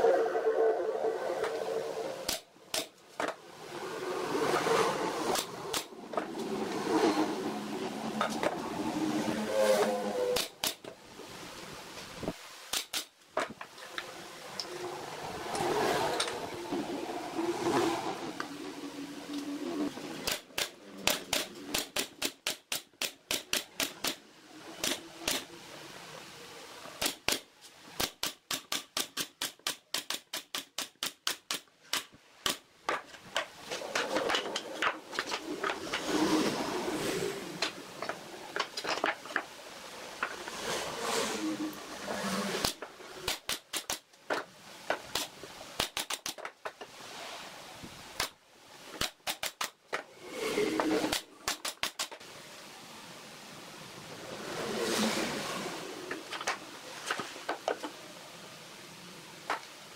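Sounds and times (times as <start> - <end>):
rough scraping noise: 0.0 - 2.3, 3.6 - 10.6, 14.0 - 20.2, 32.9 - 43.3, 50.0 - 51.1, 54.3 - 58.0.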